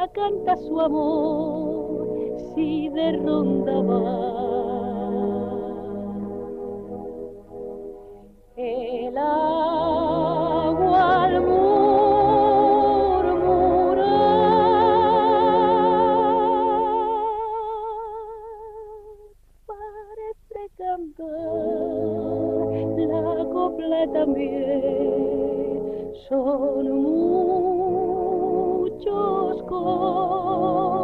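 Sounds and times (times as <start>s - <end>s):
woman singing with vibrato: 0.0s - 6.2s, 8.6s - 31.0s.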